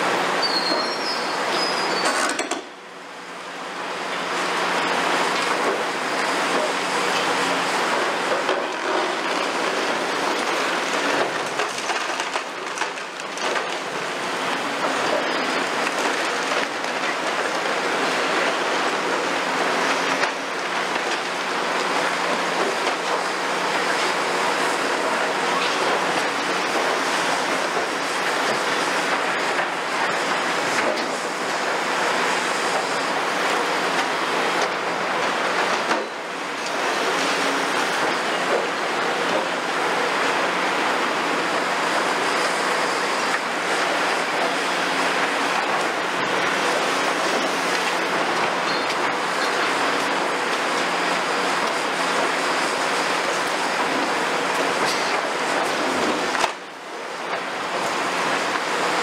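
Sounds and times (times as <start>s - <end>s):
excavator diesel engines: 0.0s - 59.0s
concrete rubble crumbling: 8.6s - 13.8s.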